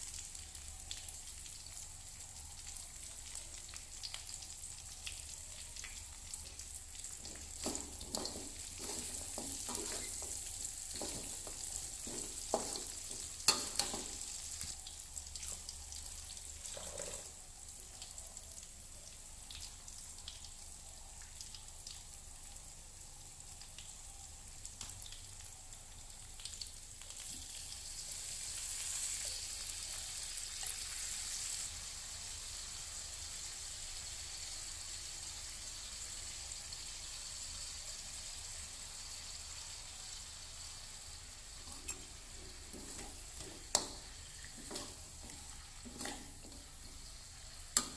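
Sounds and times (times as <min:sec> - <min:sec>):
chicken sizzling in oil: 0:00.0 - 0:47.9
metal spatula scraping a pan: 0:07.6 - 0:14.4.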